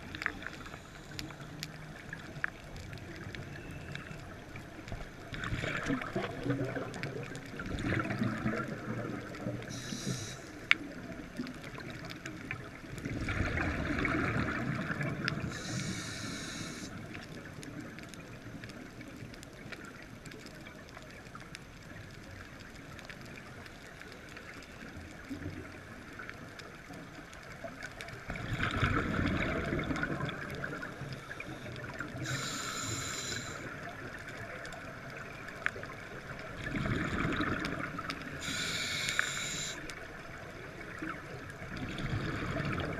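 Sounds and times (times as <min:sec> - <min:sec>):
regulator hiss: 0:00.3 - 0:01.6, 0:09.7 - 0:10.8, 0:15.4 - 0:17.0, 0:31.1 - 0:33.8, 0:38.3 - 0:40.0
bubbling exhale underwater: 0:05.3 - 0:10.4, 0:13.0 - 0:16.8, 0:28.3 - 0:31.1, 0:36.5 - 0:39.8, 0:40.9 - 0:42.9.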